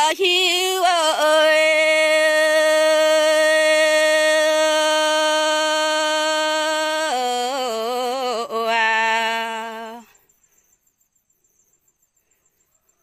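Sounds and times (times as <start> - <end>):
person singing unaccompanied: 0.0 - 10.2.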